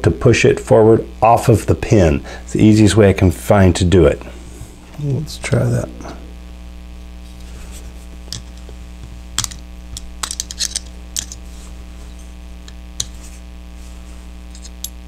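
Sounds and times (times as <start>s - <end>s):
small metal clicks and scrapes: 10.2s - 11.4s, 14.5s - 15.0s.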